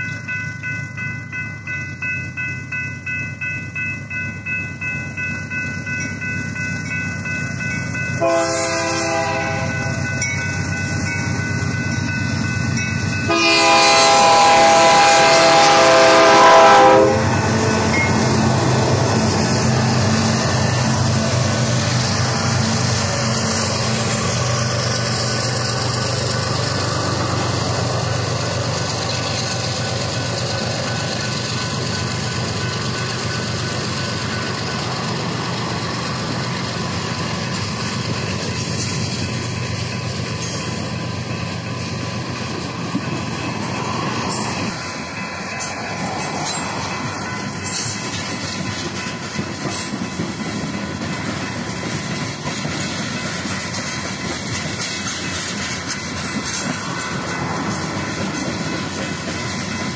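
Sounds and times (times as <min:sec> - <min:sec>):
train wheels on rails: 0:00.0 - 0:59.9
locomotive engines running: 0:04.2 - 0:59.9
locomotive horn: 0:08.2 - 0:09.9, 0:13.3 - 0:17.9.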